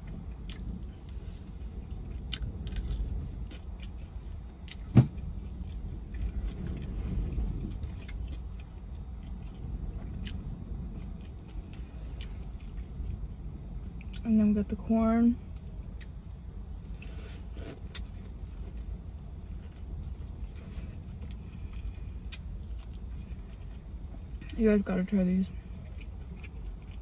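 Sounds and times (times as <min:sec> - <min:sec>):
car cabin rumble: 0:04.2 - 0:21.6
chewing chicken wings: 0:25.7 - 0:27.0.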